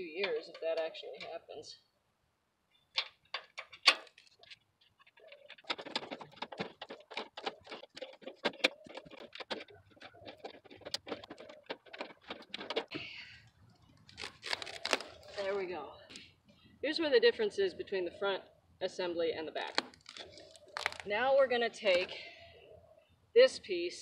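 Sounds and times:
small metal rattles: 0.0s - 1.7s, 2.7s - 15.6s.

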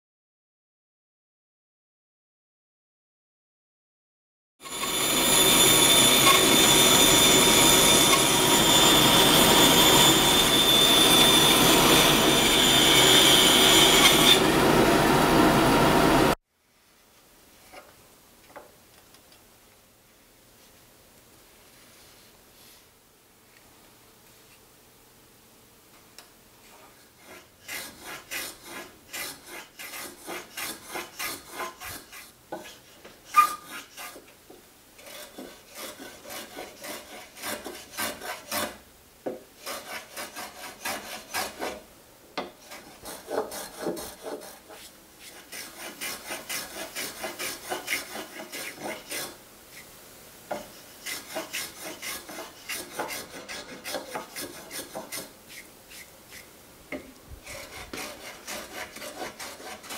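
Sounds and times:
hand plane scraping wood: 27.2s - 34.3s, 35.0s - 38.8s, 39.6s - 41.8s, 42.4s - 49.9s, 50.5s - 56.5s, 57.4s - 59.9s.

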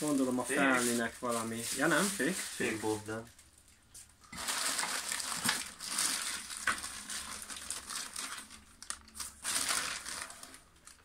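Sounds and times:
plastic bags crinkling: 0.0s - 3.3s, 4.2s - 11.0s.

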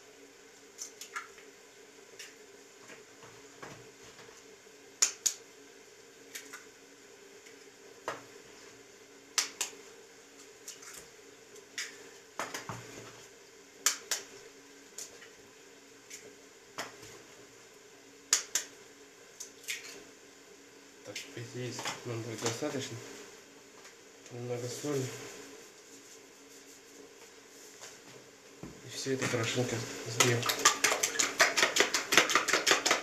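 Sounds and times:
eggs cracked on plastic bowl: 30.2s - 33.0s.

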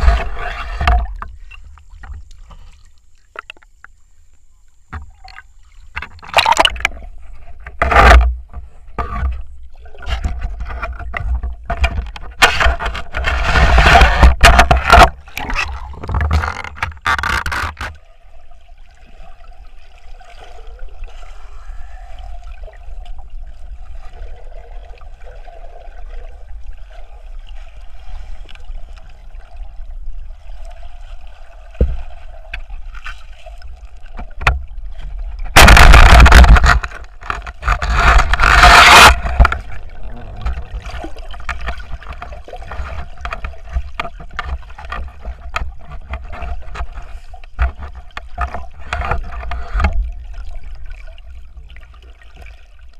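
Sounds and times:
low underwater rumble: 18.0s - 52.9s.

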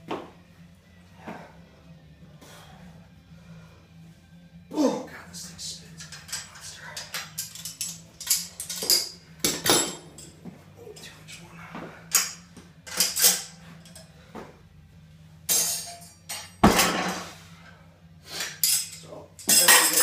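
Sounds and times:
metallic clanks and clinks: 6.0s - 11.1s, 12.1s - 14.1s, 15.5s - 17.2s, 18.4s - 20.0s.

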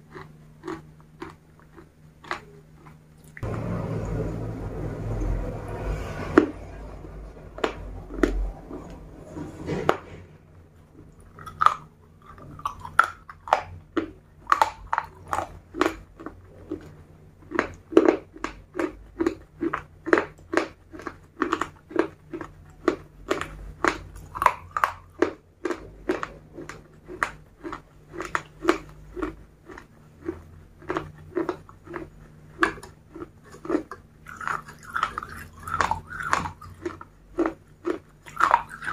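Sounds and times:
crunchy chewing: 0.0s - 3.5s, 7.3s - 38.9s.

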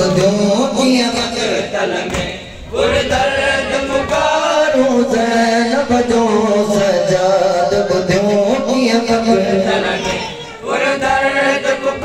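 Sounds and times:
man chanting a mourning lament: 0.0s - 2.0s, 4.5s - 10.6s.

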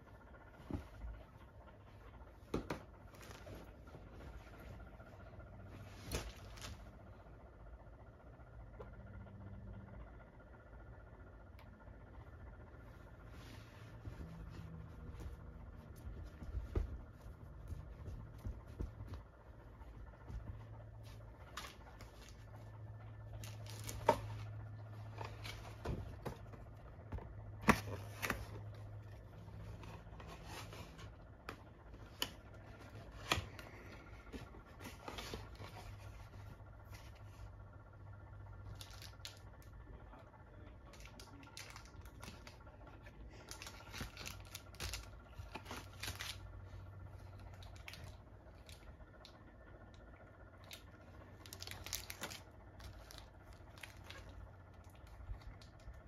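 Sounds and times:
faint low hum: 0.0s - 56.0s
snack wrappers crinkling: 43.4s - 46.4s, 51.4s - 56.0s.

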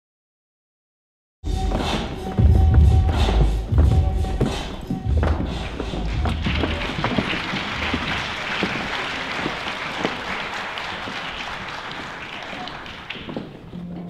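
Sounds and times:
audience applauding: 5.2s - 13.7s.

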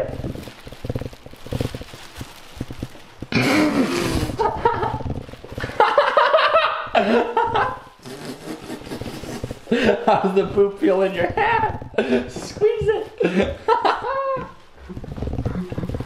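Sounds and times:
plastic bag rustling: 0.0s - 16.0s
people groaning: 3.3s - 4.4s
people laughing: 5.6s - 7.9s, 13.2s - 14.6s.

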